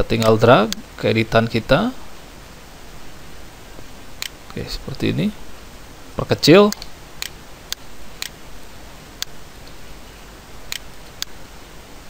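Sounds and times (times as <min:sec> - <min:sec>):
steady background hiss: 0:00.0 - 0:12.0
computer mouse clicking: 0:10.7 - 0:11.4.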